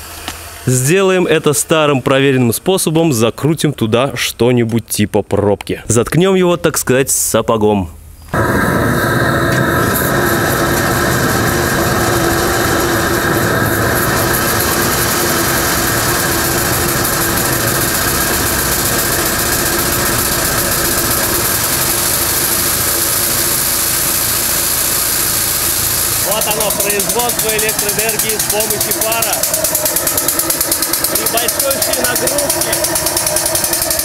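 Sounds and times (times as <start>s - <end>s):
steam engine running: 0.0s - 2.0s, 8.4s - 34.0s
steam venting hiss: 0.0s - 3.0s, 8.2s - 34.0s
steady hum: 7.9s - 34.0s.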